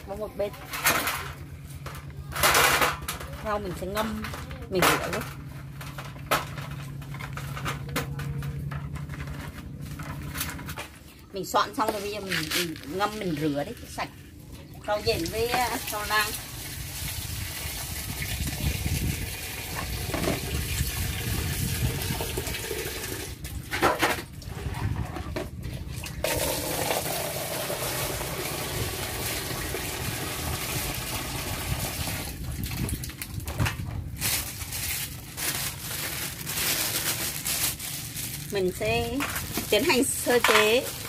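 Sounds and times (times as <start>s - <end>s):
water pouring into plastic basin: 14.8s - 23.7s, 25.6s - 38.4s.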